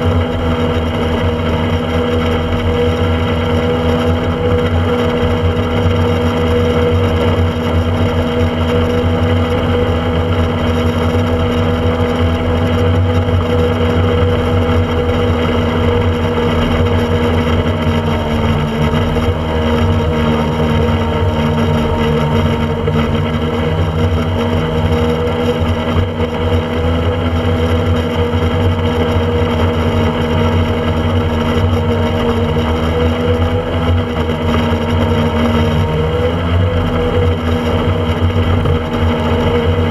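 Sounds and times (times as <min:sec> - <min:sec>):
speedboat engine drone: 0:00.0 - 0:39.9
water noise: 0:00.0 - 0:39.9.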